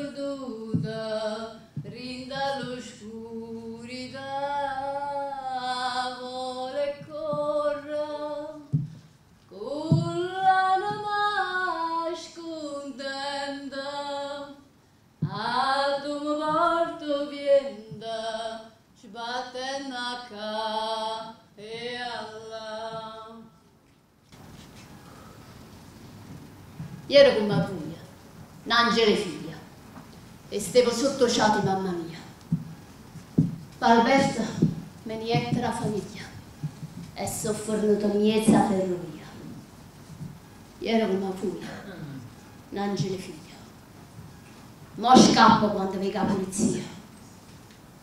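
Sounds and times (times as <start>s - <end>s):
woman singing unaccompanied: 0.0s - 8.8s, 9.5s - 23.6s, 27.1s - 29.7s, 30.5s - 32.4s, 33.8s - 36.5s, 37.2s - 39.6s, 45.0s - 47.1s.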